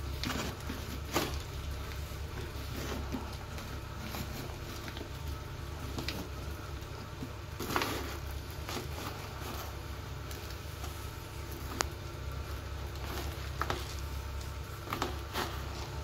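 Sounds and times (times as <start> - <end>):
scoop scraping cat litter: 0.0 - 16.0.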